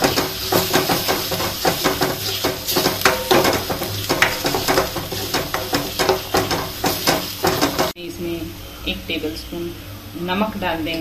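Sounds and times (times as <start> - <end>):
spatula scraping metal pan: 0.0 - 8.0
gravy frying: 0.0 - 10.8.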